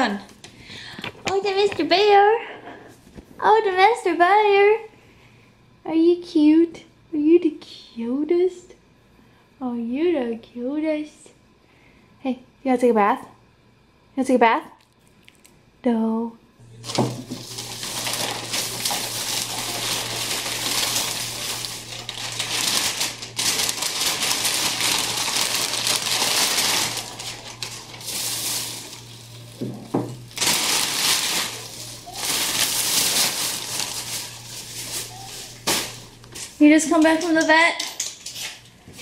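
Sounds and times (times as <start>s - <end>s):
plastic bags rustling: 16.7s - 38.6s.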